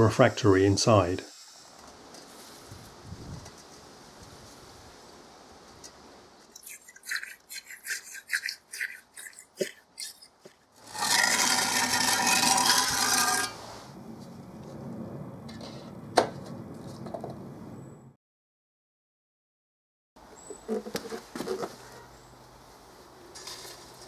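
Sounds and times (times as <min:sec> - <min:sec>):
refractory scraping and tapping: 0:09.6 - 0:13.7.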